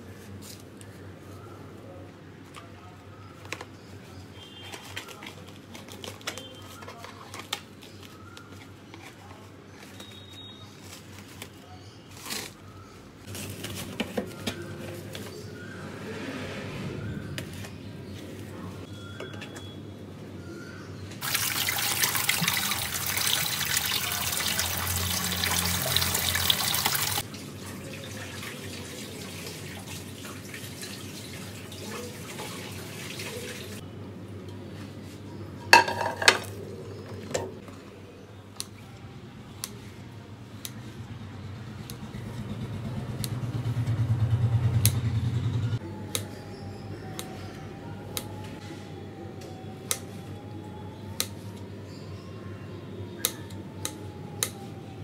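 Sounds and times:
tap running water into sink: 21.2 - 27.2.

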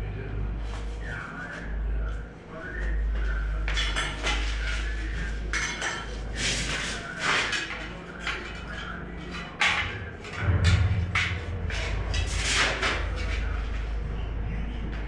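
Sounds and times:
spirit level and tile scraping wall: 3.5 - 14.0.

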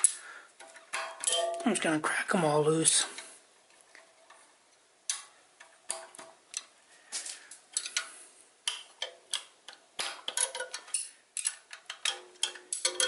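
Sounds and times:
wrench clicking on metal nuts: 8.7 - 13.0.

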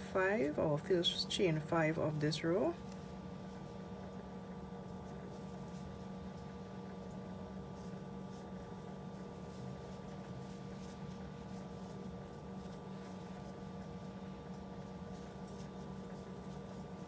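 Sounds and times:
steady background hum: 0.0 - 17.0
yarn rustling on crochet hook: 4.8 - 17.0.

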